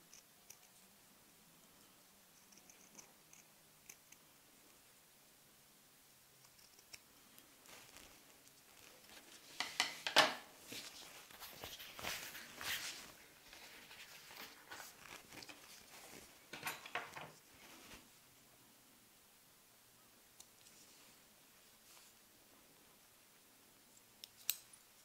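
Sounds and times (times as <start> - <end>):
soft rustling of leather: 7.6 - 9.5, 10.6 - 16.5.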